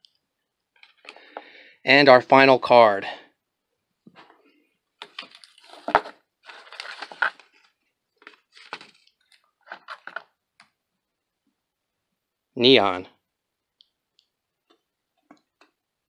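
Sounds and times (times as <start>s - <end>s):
card handling: 5.0s - 10.3s
cardboard flaps scraping and rustling: 5.1s - 7.6s.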